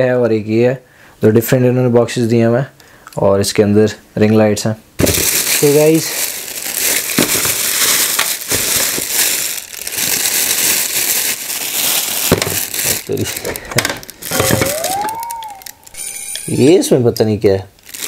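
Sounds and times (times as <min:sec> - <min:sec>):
plastic wrapping crinkling: 0:05.0 - 0:16.8, 0:17.8 - 0:18.0.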